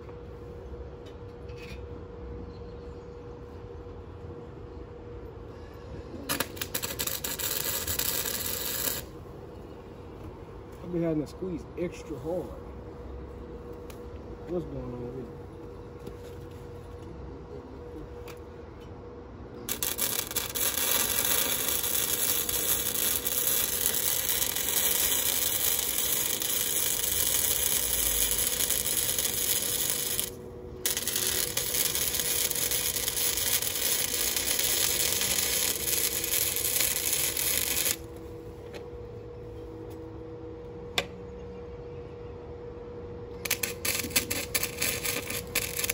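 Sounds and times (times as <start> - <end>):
faint steady hum: 0.0 - 45.9
welding arc crackling: 6.3 - 9.2, 19.7 - 38.1, 43.4 - 45.9.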